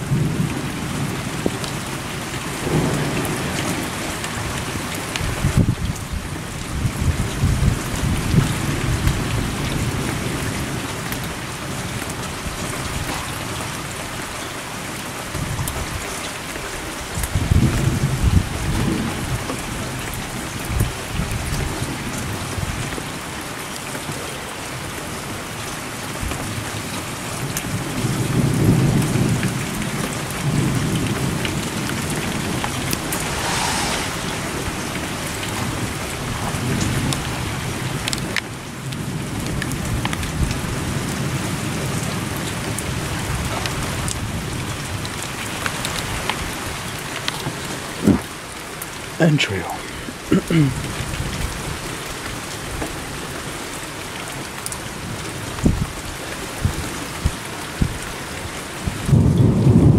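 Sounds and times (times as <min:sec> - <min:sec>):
rain pouring: 0:00.0 - 0:59.9
low thunder rumbling: 0:30.4 - 0:37.1, 0:58.9 - 0:59.9.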